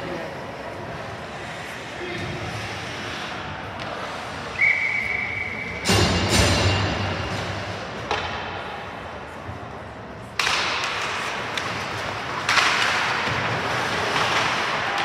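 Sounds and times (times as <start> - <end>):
rink crowd noise: 0.0 - 15.0
puck striking rink boards: 7.1 - 8.9, 10.3 - 15.0.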